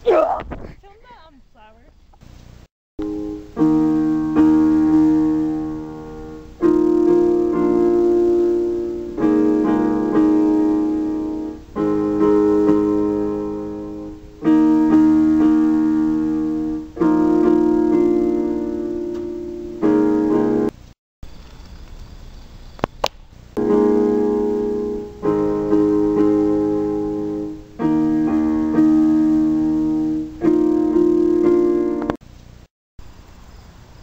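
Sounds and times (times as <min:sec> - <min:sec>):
slow piano chords: 0:03.0 - 0:20.7, 0:23.6 - 0:32.2.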